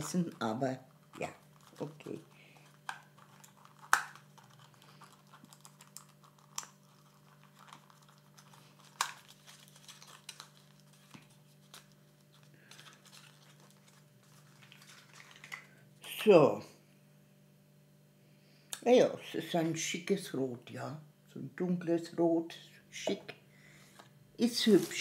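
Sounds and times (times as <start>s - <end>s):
rustling: 0.0s - 15.7s, 24.4s - 25.0s
faint steady hum: 0.0s - 25.0s.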